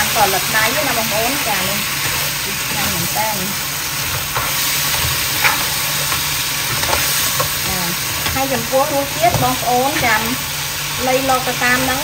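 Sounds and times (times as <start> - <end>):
crab sizzling in wok: 0.0 - 12.0
spatula scraping pan: 4.0 - 10.4.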